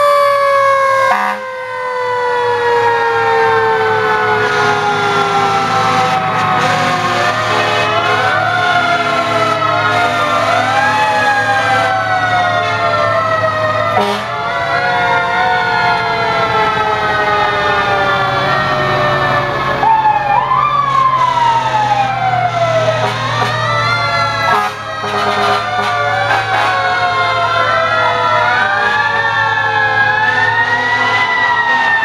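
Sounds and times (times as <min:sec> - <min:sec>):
fire truck siren rising and falling: 0:00.0 - 0:32.0
truck engine low rumble: 0:00.0 - 0:32.0.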